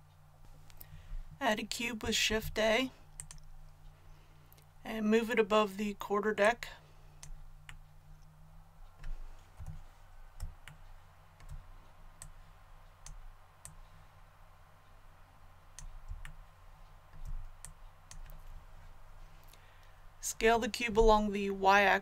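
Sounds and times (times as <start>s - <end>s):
faint low hum: 0.0s - 22.0s
computer mouse clicking: 3.1s - 3.5s, 17.1s - 19.0s.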